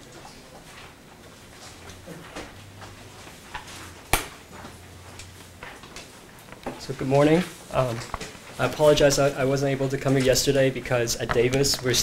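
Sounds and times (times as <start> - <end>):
paper rustling and shuffling: 7.3 - 12.0.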